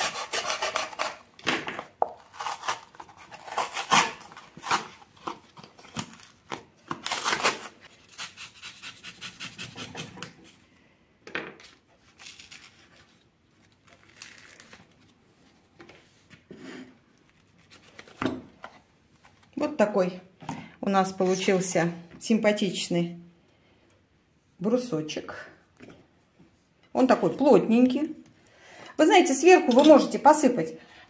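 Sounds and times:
knife cutting cardboard carton: 0.0s - 1.3s, 2.2s - 6.2s, 7.0s - 10.4s
carton tearing: 0.0s - 10.3s, 13.8s - 15.0s.

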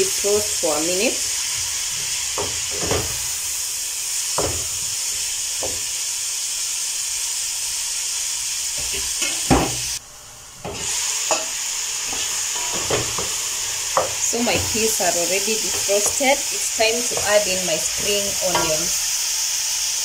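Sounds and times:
vegetables sizzling in a pot: 0.0s - 20.0s
spoon knocking and scraping pot: 2.3s - 3.2s, 4.4s - 4.8s, 10.6s - 11.5s, 12.1s - 19.0s.

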